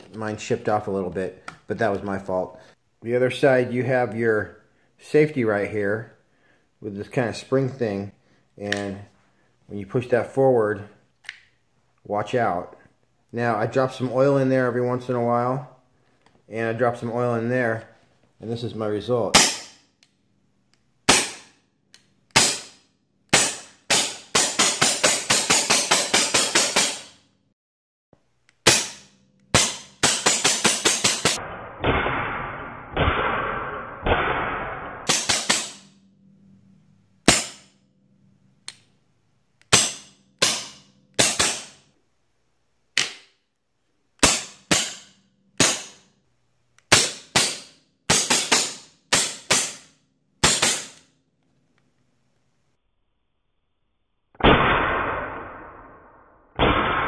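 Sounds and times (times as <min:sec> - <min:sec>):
air rifle shots: 0:22.4 - 0:27.2, 0:28.6 - 0:35.9, 0:39.7 - 0:41.8, 0:44.2 - 0:46.0, 0:46.9 - 0:51.0, 0:54.4 - 0:56.0, 0:56.6 - 0:57.0.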